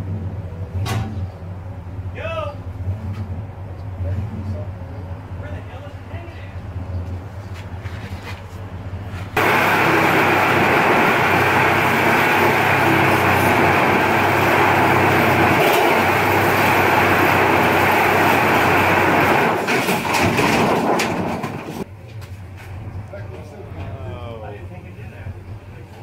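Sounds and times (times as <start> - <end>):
power saw cutting sheet metal: 9.4 - 20.4.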